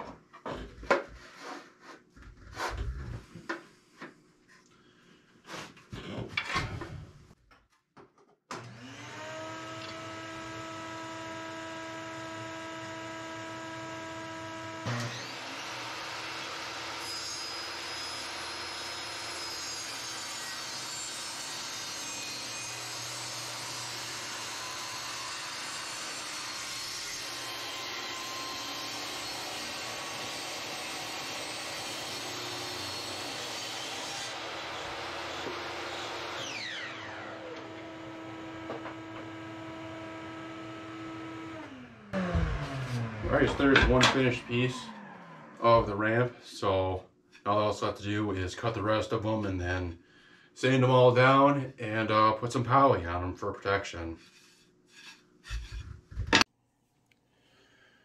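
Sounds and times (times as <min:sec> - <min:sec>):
table saw motor whine: 0:08.6 - 0:46.0.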